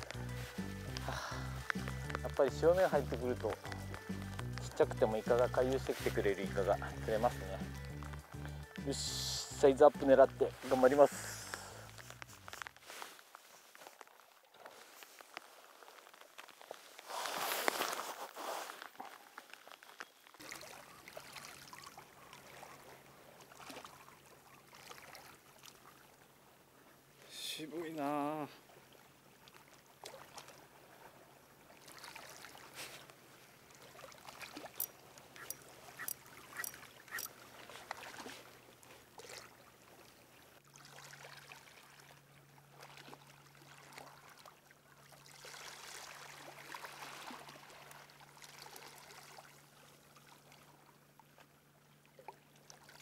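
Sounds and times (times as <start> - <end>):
small waves lapping on rocks: 10.7 - 26.3, 27.6 - 51.4.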